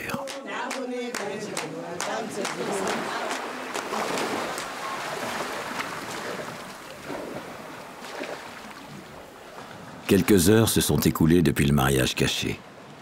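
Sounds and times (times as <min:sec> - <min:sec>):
water lapping and splashing: 0:00.2 - 0:10.6.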